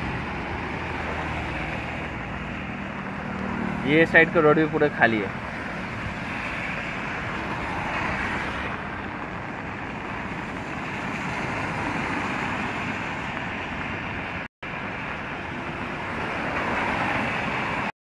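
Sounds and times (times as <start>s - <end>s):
wind on microphone: 0.0s - 14.4s
heavy rain: 5.4s - 17.9s.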